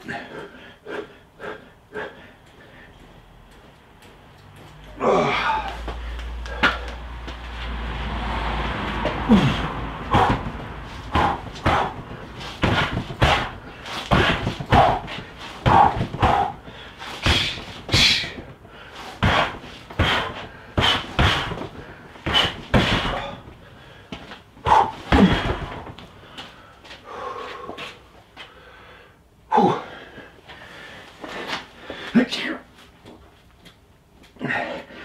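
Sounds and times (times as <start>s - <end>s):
punches thudding on striking dummy: 9.3s - 18.6s, 19.2s - 23.6s, 24.7s - 26.0s.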